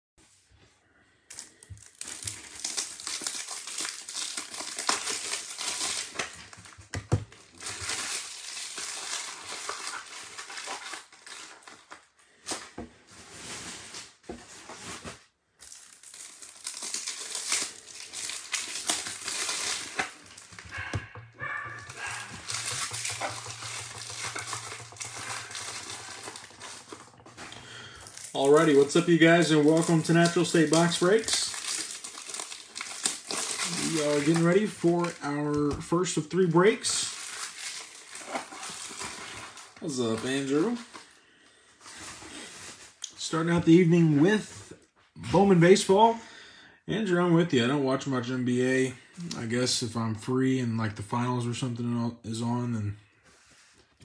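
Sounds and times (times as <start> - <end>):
crinkling and rustling: 1.3 - 36.0, 36.6 - 41.2, 41.8 - 44.9.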